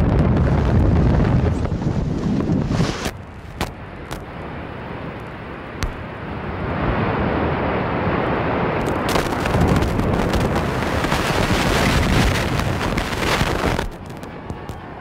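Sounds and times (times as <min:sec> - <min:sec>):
building collapse rumble: 0:00.0 - 0:03.4, 0:05.8 - 0:15.0
crackle of debris impacts: 0:05.8 - 0:06.1, 0:08.8 - 0:14.9.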